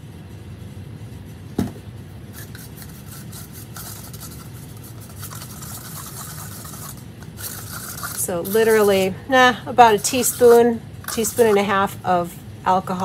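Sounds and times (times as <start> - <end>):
knock: 1.6 - 1.8
brush swishing in cup: 2.3 - 9.2, 9.8 - 12.0.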